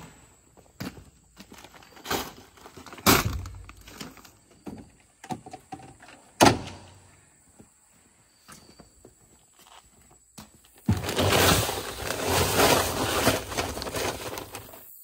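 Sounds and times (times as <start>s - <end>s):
heavy bags thudding into cargo bed: 10.8s - 14.6s
plastic jugs knocking: 10.8s - 14.6s.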